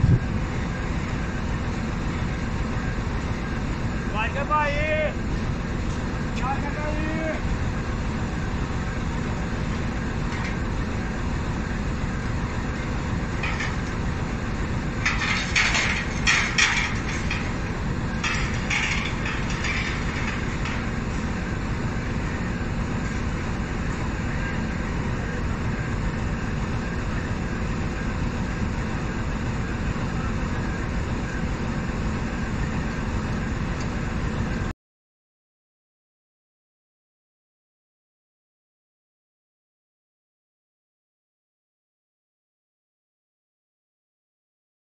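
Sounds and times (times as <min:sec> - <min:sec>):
train low rumble: 0:00.0 - 0:34.7.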